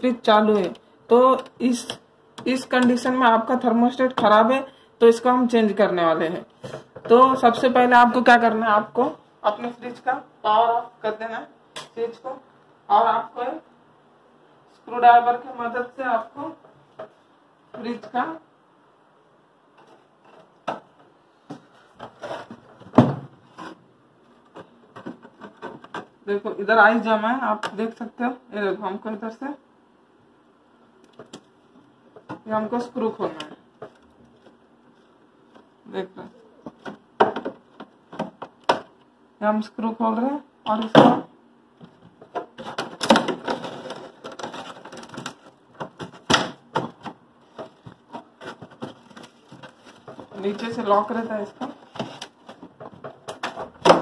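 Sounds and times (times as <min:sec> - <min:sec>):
hard plastic clicking and scraping: 0:41.8 - 0:50.7.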